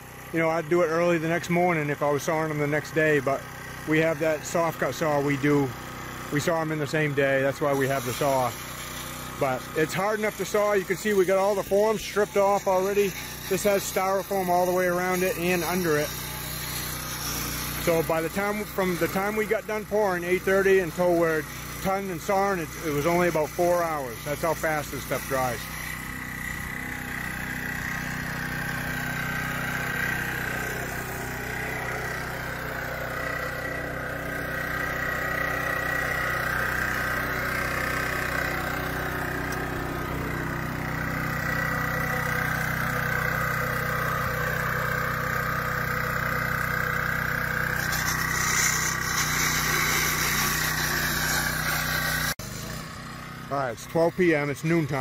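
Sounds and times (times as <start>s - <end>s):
concrete saw engine drone: 0.0s - 55.0s
saw blade high whine: 6.3s - 55.0s.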